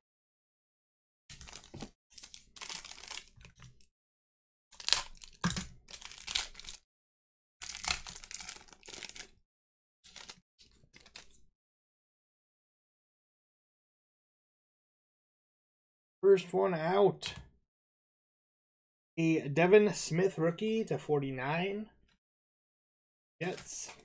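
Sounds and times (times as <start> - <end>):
foil wrapper tearing and crinkling: 1.3 - 3.5, 4.8 - 6.8, 7.6 - 9.4.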